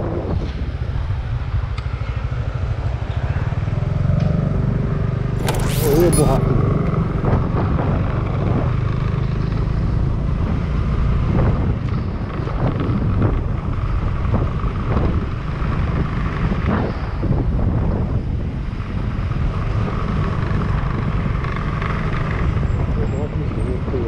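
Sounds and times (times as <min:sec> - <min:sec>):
road rumble: 0:00.0 - 0:24.0
vehicle engine: 0:01.1 - 0:16.9.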